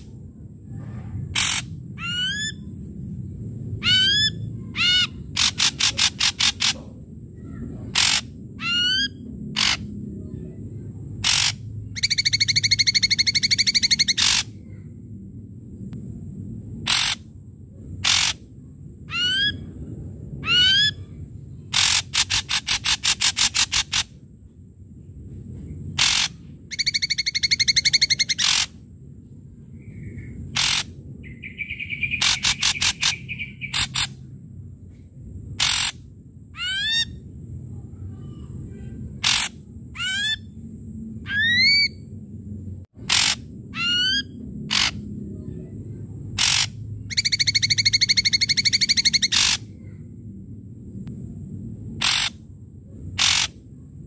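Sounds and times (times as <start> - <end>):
buzzing bird rattles: 1.3 - 1.7, 5.0 - 7.0, 7.9 - 8.3, 11.1 - 14.6, 16.8 - 17.2, 18.0 - 18.4, 21.7 - 24.2, 25.9 - 28.8, 30.5 - 34.2, 35.5 - 36.0, 39.1 - 39.7, 43.0 - 43.5, 46.3 - 49.7, 52.0 - 52.4, 53.2 - 53.6
bird singing harsh scratchy notes: 1.3 - 2.7, 3.8 - 9.9, 11.2 - 14.7, 16.9 - 17.2, 18.0 - 18.5, 25.8 - 28.8, 29.7 - 34.2, 35.6 - 36.0, 38.4 - 40.6, 43.0 - 45.1, 46.4 - 50.0, 53.2 - 53.6
upward-sweeping bird whistles: 11.3 - 14.4, 26.7 - 28.6, 29.8 - 33.9, 47.1 - 49.5.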